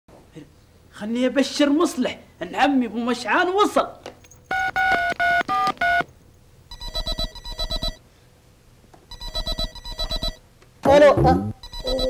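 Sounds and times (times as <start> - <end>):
electronic telephone ring: 6.7 - 8.0, 9.1 - 10.4, 11.6 - 12.0
two-tone dialling beeps: 6.7 - 8.0, 9.1 - 10.4, 11.6 - 12.0.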